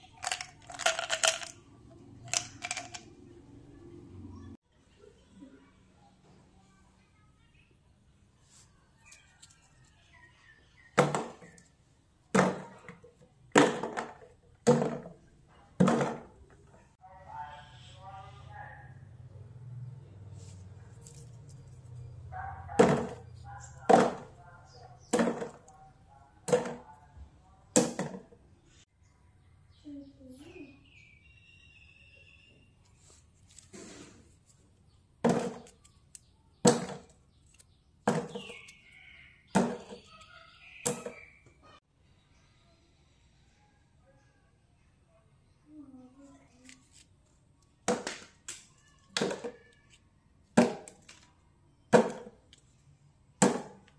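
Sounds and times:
lollipops knocking into plastic jar: 0:00.2 - 0:01.6, 0:02.3 - 0:03.1, 0:25.1 - 0:25.7, 0:35.2 - 0:35.9, 0:36.6 - 0:37.2, 0:47.8 - 0:48.6, 0:51.9 - 0:52.5.

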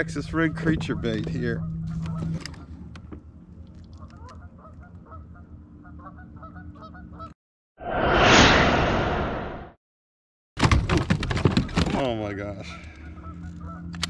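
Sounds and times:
geese honking: 0:04.2 - 0:07.3, 0:12.6 - 0:13.9
loud rushing noise: 0:07.8 - 0:09.8.

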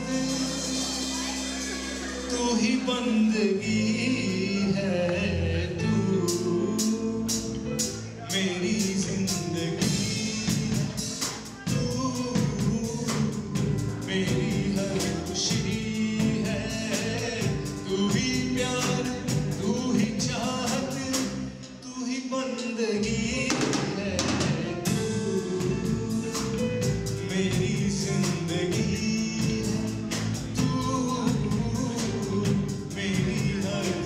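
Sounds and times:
steady drum beat: 0:00.0 - 0:02.9, 0:08.8 - 0:21.4, 0:23.5 - 0:34.0
person singing: 0:00.0 - 0:34.0.

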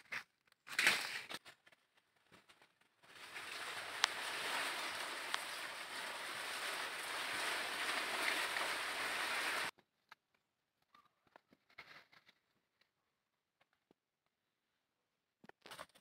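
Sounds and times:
rushing outdoor noise: 0:03.2 - 0:09.7.

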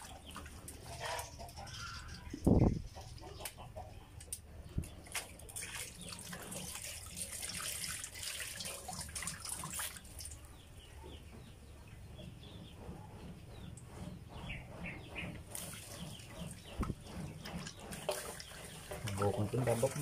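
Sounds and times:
water splashing in a metal basin: 0:00.0 - 0:02.5, 0:04.8 - 0:10.5, 0:15.4 - 0:20.0
water dripping: 0:04.2 - 0:10.5, 0:15.5 - 0:20.0.

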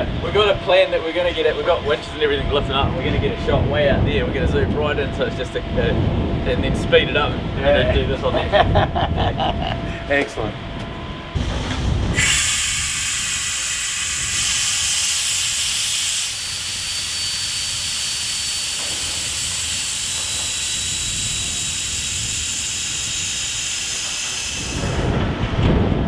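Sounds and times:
welding arc hissing: 0:11.4 - 0:25.3.

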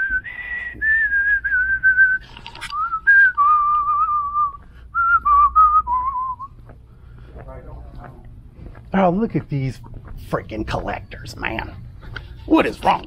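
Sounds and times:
man whistling a tune: 0:00.0 - 0:06.6.

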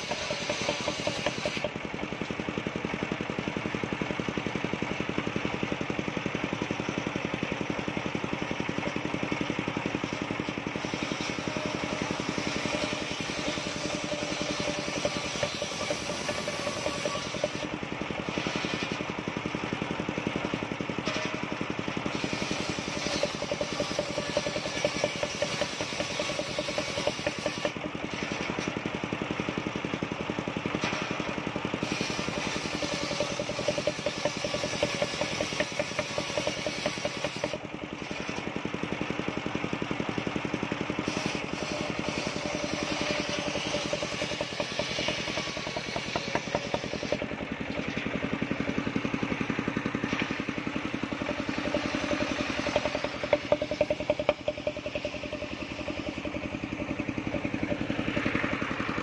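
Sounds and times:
saw blade ripping wood: 0:00.0 - 0:02.3, 0:09.8 - 0:19.4, 0:20.1 - 0:29.0, 0:30.6 - 0:38.6, 0:40.9 - 0:58.0
saw engine running: 0:00.0 - 0:59.0.

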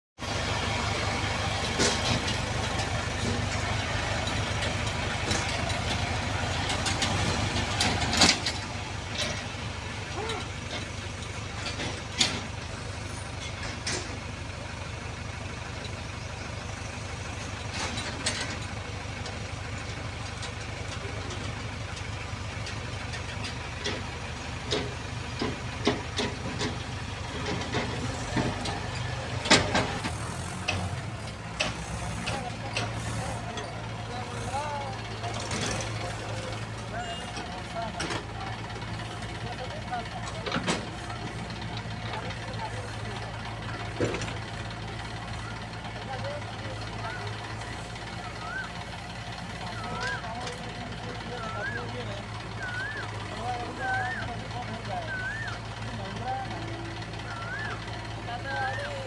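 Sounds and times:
diesel engine rumbling: 0:00.2 - 0:59.0
sharp knocks and clanks: 0:01.6 - 0:09.5, 0:11.6 - 0:12.6, 0:23.1 - 0:33.8.

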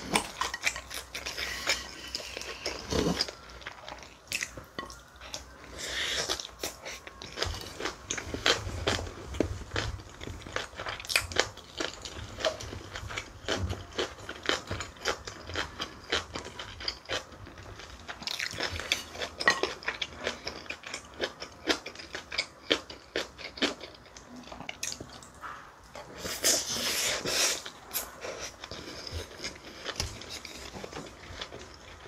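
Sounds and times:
close chewing with crunches: 0:00.0 - 0:32.0.

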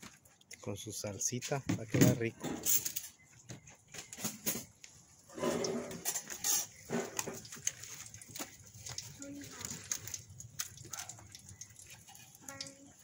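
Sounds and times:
plates and utensils clinking: 0:05.3 - 0:07.5.

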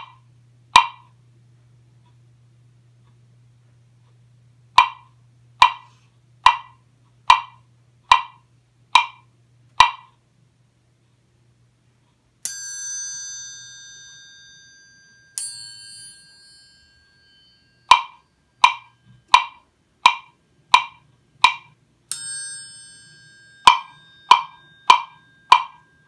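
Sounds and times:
wood block struck with mallet: 0:00.8 - 0:01.1, 0:04.8 - 0:08.4, 0:09.0 - 0:09.2, 0:09.8 - 0:10.1, 0:12.5 - 0:26.0
metal triangle ringing: 0:12.4 - 0:19.8, 0:22.1 - 0:26.0.

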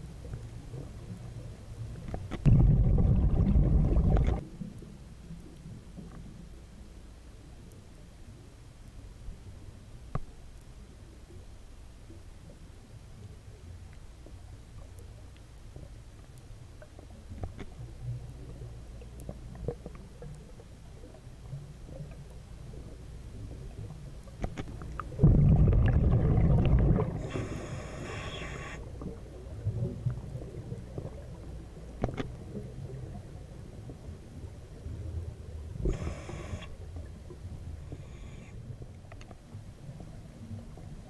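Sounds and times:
low underwater rumble: 0:00.1 - 0:06.9, 0:12.1 - 0:28.0
exhaled bubbles rumbling: 0:02.3 - 0:04.7, 0:24.8 - 0:31.9
faint clicks: 0:04.1 - 0:06.6, 0:07.6 - 0:25.2, 0:27.3 - 0:33.3, 0:35.8 - 0:39.6
regulator breath hissing in: 0:27.2 - 0:28.8, 0:35.8 - 0:36.8, 0:37.9 - 0:38.6.

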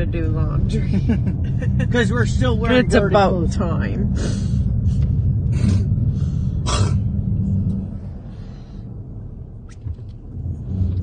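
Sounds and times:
car cabin road rumble: 0:00.0 - 0:11.0.

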